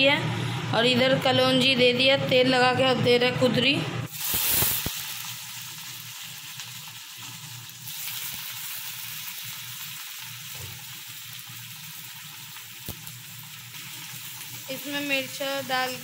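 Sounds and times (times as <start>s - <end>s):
vegetables sizzling in hot oil: 4.1s - 16.0s.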